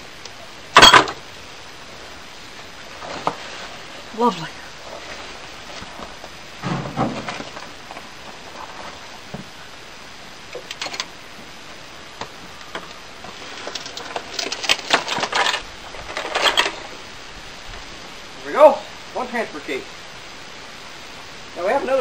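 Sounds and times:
metallic clinking and rattling: 0.8 - 1.2, 13.5 - 16.9.

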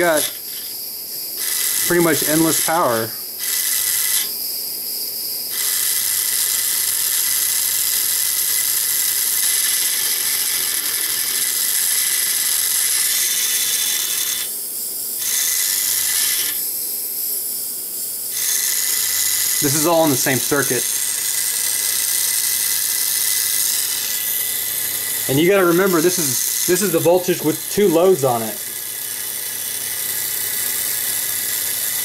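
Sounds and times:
small motor whirring through gears: 0.0 - 32.0.

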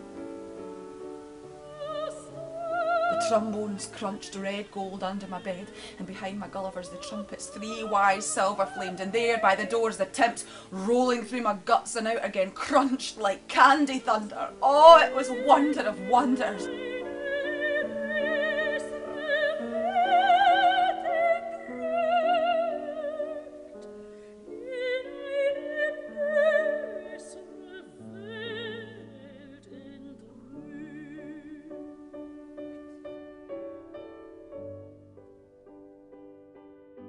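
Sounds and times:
operatic voice singing: 1.8 - 23.3.

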